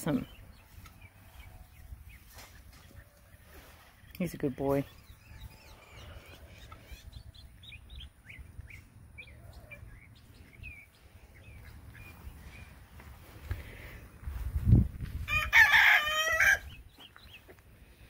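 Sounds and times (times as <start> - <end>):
birds chirping faintly: 0.0 - 14.4, 16.6 - 18.0.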